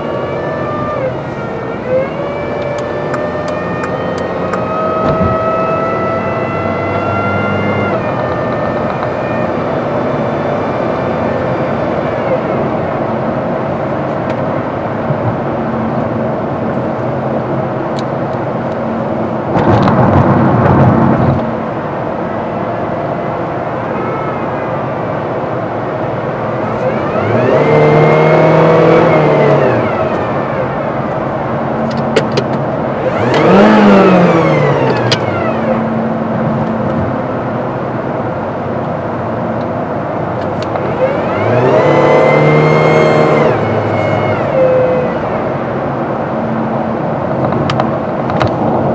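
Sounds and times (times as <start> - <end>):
car engine hum: 0.0 - 48.9
road and tyre noise: 0.0 - 48.9
rising and falling pitched hum: 32.7 - 48.9.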